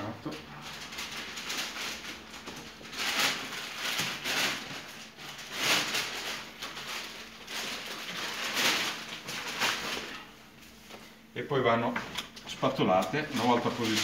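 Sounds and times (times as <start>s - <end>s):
crackly rustling of plastic sheet: 0.1s - 11.2s, 12.5s - 14.0s.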